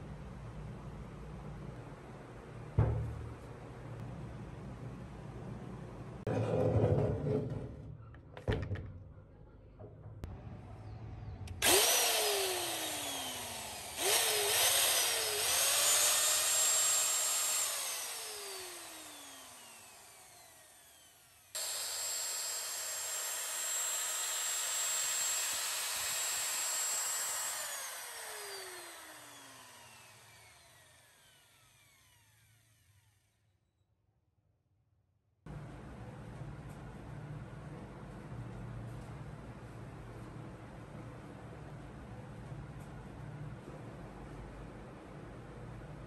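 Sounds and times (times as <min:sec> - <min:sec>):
electric drill motor whine: 0:11.6 - 0:33.4.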